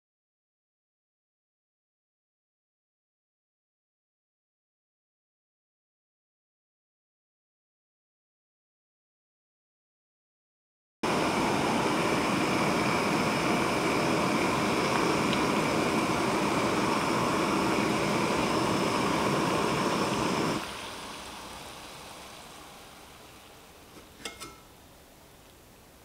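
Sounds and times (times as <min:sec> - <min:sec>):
gas stove burner hissing: 0:11.0 - 0:25.6.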